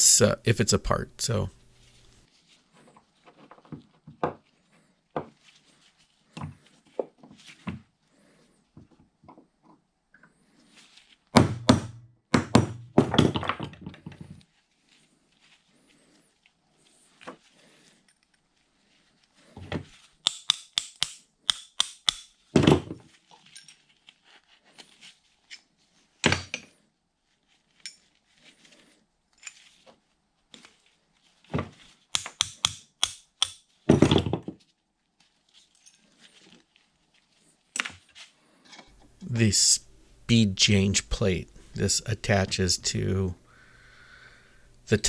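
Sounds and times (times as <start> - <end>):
hammer tapping metal punch: 20.2 - 22.3, 32.2 - 33.6.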